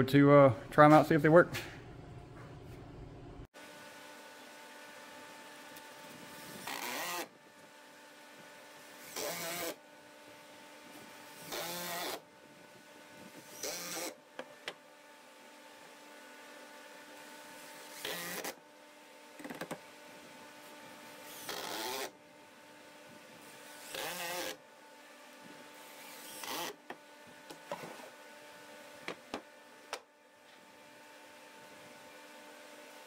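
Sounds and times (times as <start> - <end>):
low hum: 1.4 - 3.5
impact driver driving screws: 21.3 - 22.1, 23.9 - 24.6, 26.0 - 26.8.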